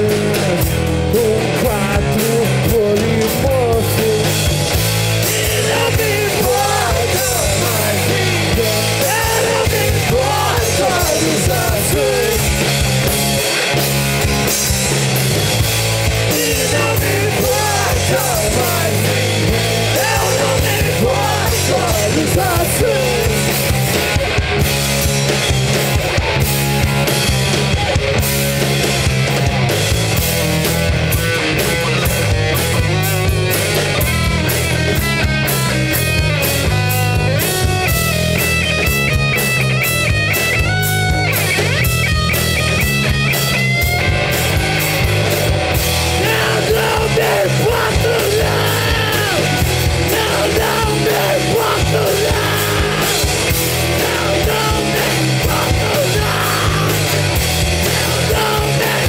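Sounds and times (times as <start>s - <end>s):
bass guitar: 0.0s - 59.0s
distorted electric guitars: 0.0s - 59.0s
fast drums: 0.0s - 59.0s
lead guitar line: 0.0s - 59.0s
person shouting vocals: 46.2s - 53.2s, 54.0s - 57.1s.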